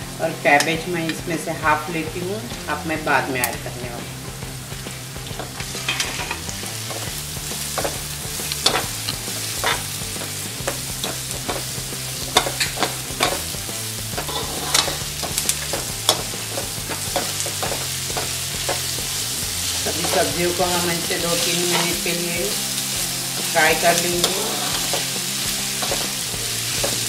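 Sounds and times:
vegetables sizzling in oil: 0.0s - 27.0s
spatula scraping metal pan: 5.4s - 7.1s, 14.1s - 27.0s.

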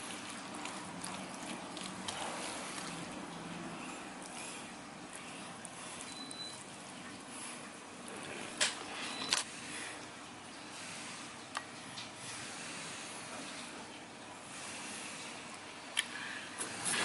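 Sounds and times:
fingers squishing wet food: 0.0s - 6.7s.

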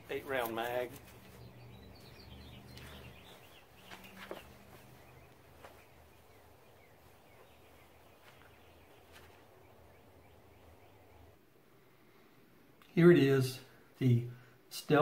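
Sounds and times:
low steady hum: 0.0s - 12.9s
shirt rustle: 0.2s - 9.6s
faint bird chirps: 1.0s - 11.4s.

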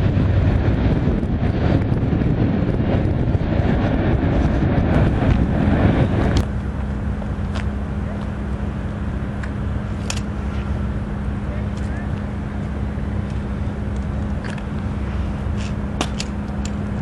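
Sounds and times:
freight train rumbling past: 0.0s - 17.0s
steady low hum: 0.0s - 17.0s
wind on microphone: 0.0s - 17.0s.

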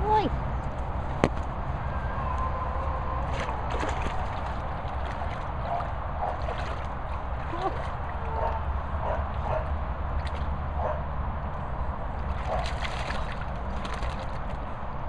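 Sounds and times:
puppy splashing in water: 3.1s - 10.8s, 12.2s - 14.8s.

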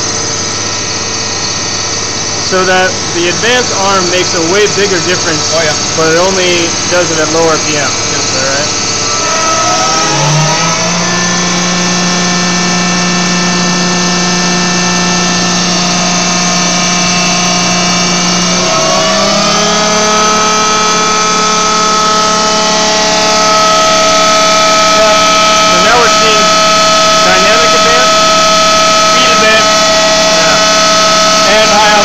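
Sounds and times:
injection pump machine whining: 0.0s - 32.0s.

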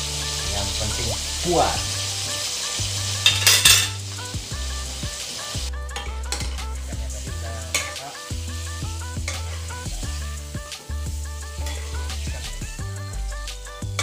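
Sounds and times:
background music: 0.0s - 14.0s
fish sizzling in hot oil: 0.0s - 14.0s
metal spatula scraping pan: 3.1s - 4.0s, 7.7s - 8.2s.

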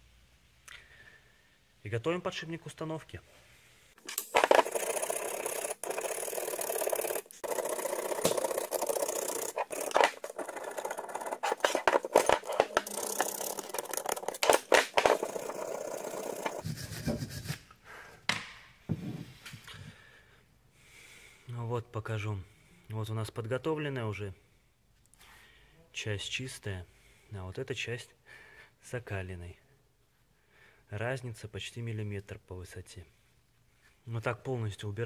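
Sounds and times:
hand tool scraping metal: 4.0s - 17.6s.

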